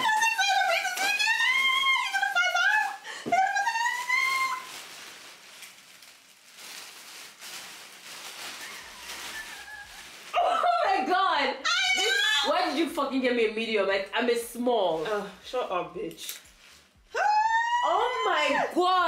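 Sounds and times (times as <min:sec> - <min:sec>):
faint rustle: 0:04.2 - 0:10.4
woman squealing: 0:11.6 - 0:12.5, 0:17.1 - 0:18.7.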